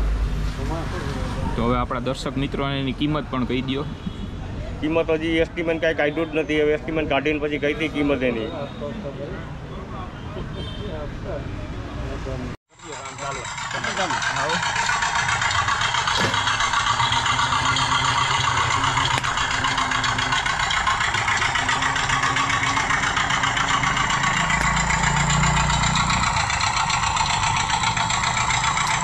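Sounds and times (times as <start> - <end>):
small engine running steadily: 12.7 - 29.0.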